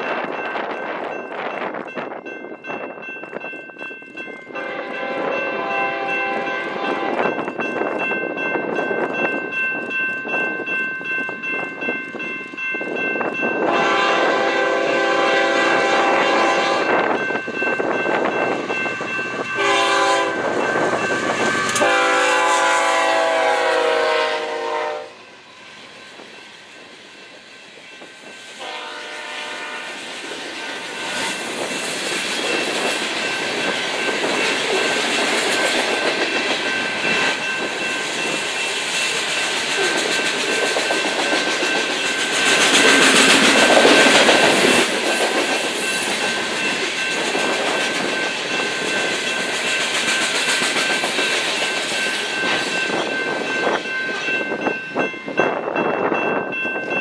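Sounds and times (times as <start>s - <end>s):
train wheels clattering on rails: 0.0s - 23.5s, 25.8s - 57.0s
locomotive air horn: 4.6s - 7.2s, 13.6s - 17.0s, 19.6s - 20.5s, 21.2s - 25.3s, 28.6s - 31.4s.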